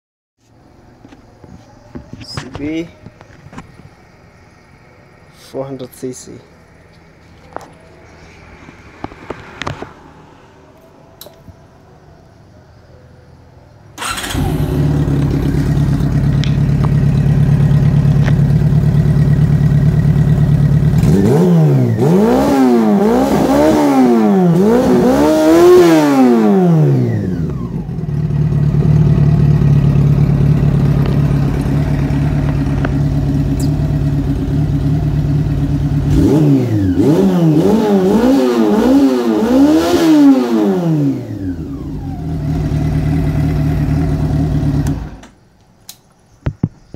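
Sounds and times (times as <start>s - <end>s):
motorcycle engine idling and revving: 6.5s - 11.7s, 14.0s - 45.4s.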